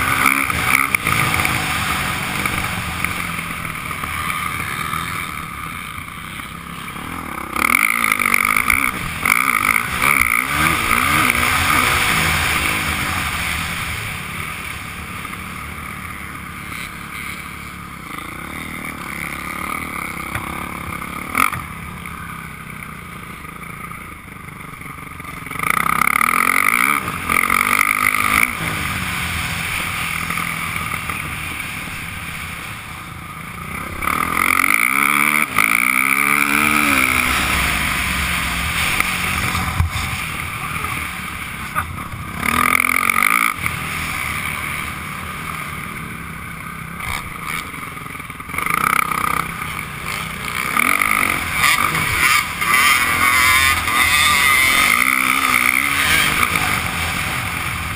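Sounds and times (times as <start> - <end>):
dirt bike engine revving: 0.0 - 57.9.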